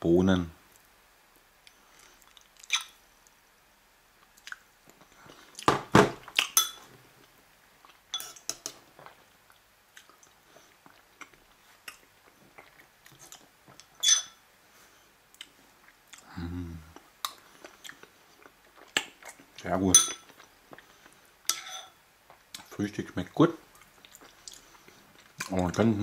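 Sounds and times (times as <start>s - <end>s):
quiet chewing: 1.6s - 3.4s, 4.2s - 5.7s, 7.2s - 14.0s, 15.3s - 16.3s, 16.9s - 19.6s, 23.7s - 25.8s
spoon scraping a bowl: 8.1s - 8.7s, 14.0s - 14.4s, 21.5s - 22.0s.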